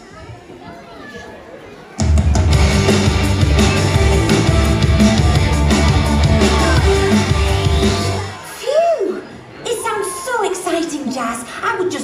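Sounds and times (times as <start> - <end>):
music with heavy bass and beat: 2.3 - 8.3.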